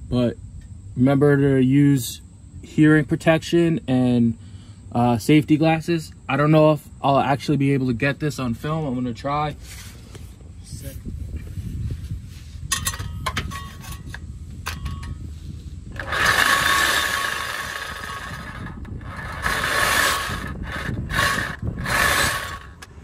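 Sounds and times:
reciprocating saw cutting metal pipe: 16.0s - 22.9s.

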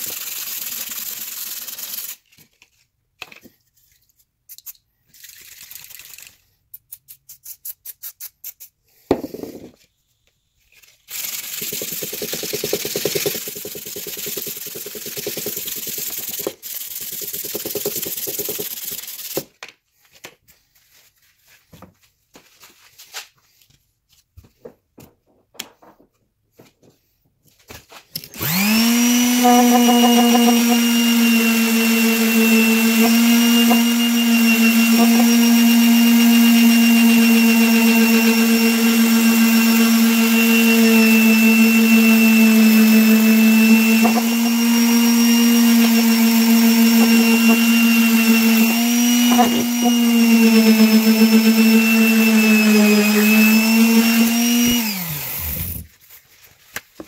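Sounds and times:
sandpaper rubbing on metal: 7.0s - 8.8s
electric palm sander humming: 28.4s - 55.8s.

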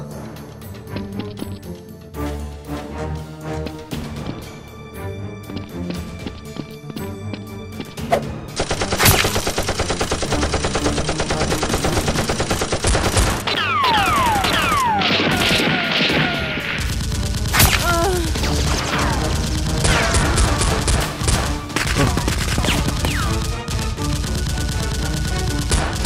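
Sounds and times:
rapid gunfire sound effect: 8.6s - 26.0s.

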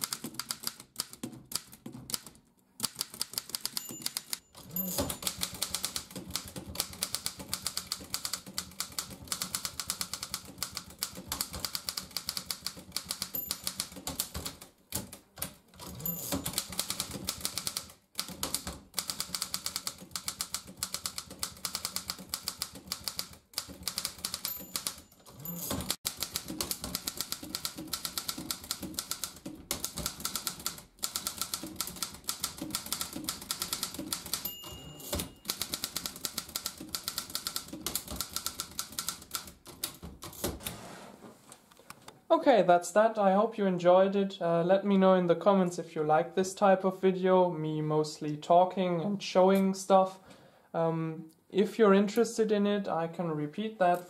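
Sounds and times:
manual typewriter keystrokes: 0.0s - 40.7s.

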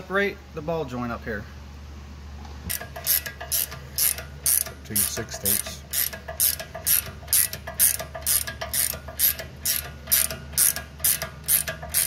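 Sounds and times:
socket ratchet clicking: 2.7s - 12.0s.

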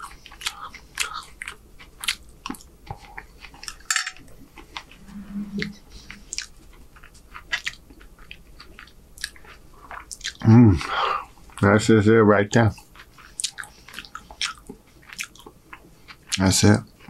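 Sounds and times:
chewing food: 0.0s - 5.0s, 6.0s - 11.8s, 12.6s - 17.0s
low hum: 4.1s - 7.0s
lip smacks: 13.0s - 15.9s.

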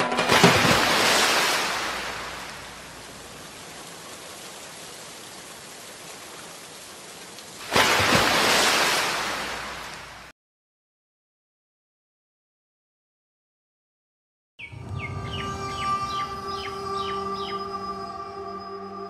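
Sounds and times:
rain-like hiss: 0.6s - 10.3s.

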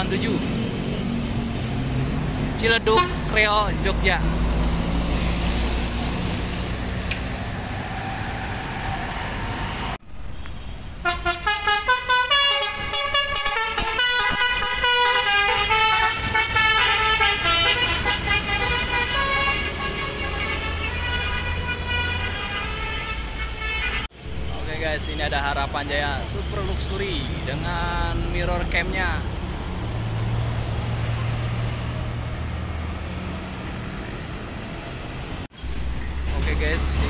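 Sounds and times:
multi-tone musical bus horn: 2.9s - 3.3s, 11.0s - 24.1s.

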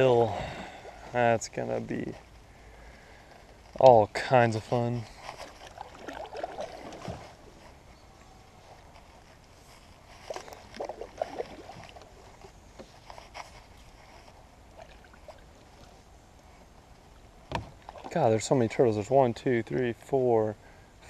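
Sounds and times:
paddle splashing and dripping: 5.2s - 7.6s, 10.2s - 12.6s, 14.6s - 18.5s.

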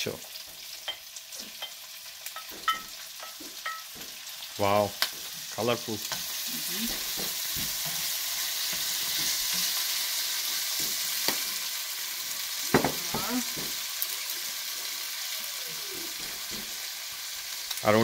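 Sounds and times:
vegetables sizzling in hot oil: 0.0s - 18.0s
sharp knocks on pan: 12.7s - 13.8s.

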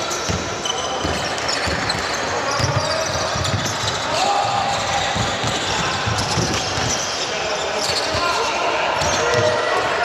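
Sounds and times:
basketball bouncing on court: 0.2s - 7.0s, 9.0s - 9.6s.

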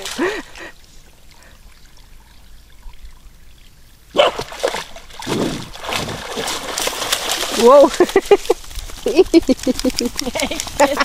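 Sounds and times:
dog barking: 4.2s - 4.5s
dog splashing through water: 4.2s - 10.8s.

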